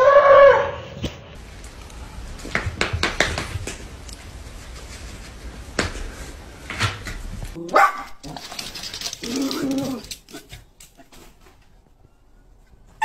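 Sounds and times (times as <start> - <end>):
puppy claws tapping on tile: 7.6 - 11.2.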